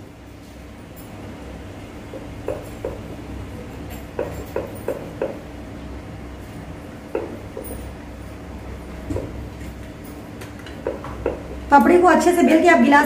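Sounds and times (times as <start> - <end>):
steady low hum: 0.0 - 13.0
rolling pin knocking on board: 4.2 - 5.4, 7.1 - 7.8, 10.8 - 11.5.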